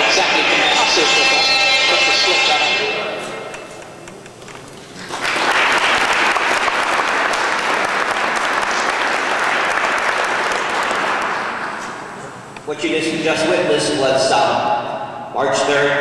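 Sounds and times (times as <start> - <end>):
audience clapping: 4.4 - 12.0.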